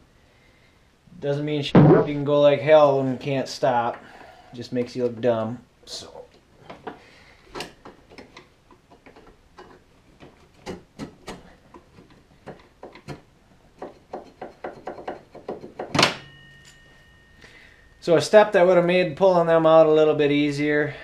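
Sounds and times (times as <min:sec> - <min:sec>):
loud metal clank: 0:01.7 - 0:02.2
short steady ringing tone: 0:16.2 - 0:18.6.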